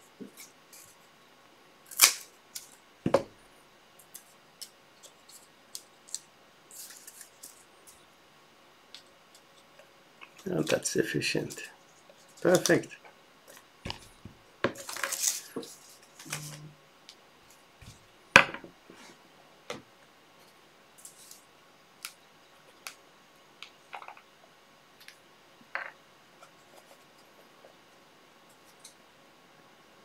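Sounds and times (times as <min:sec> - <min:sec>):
small objects clicking and tapping: 0:23.6 - 0:24.3.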